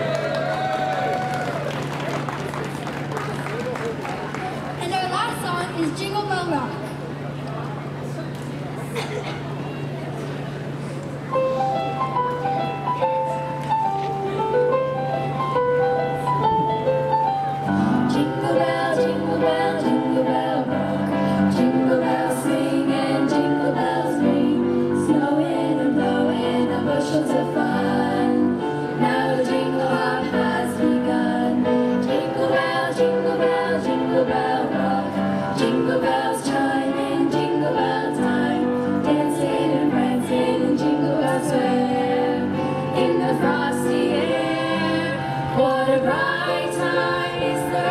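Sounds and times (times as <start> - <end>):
girls choir singing in harmony: 17.6 - 47.9.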